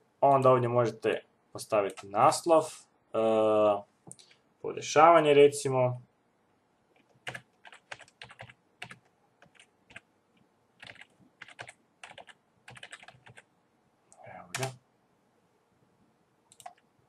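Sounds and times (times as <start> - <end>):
typing on computer keyboard: 7.0 - 10.1, 10.8 - 13.5, 14.5 - 14.8, 16.5 - 16.8.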